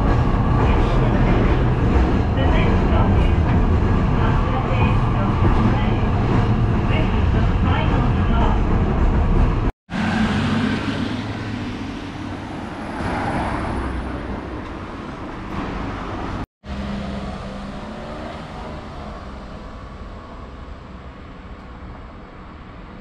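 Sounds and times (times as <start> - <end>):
cars driving past: 9.9 - 23.0.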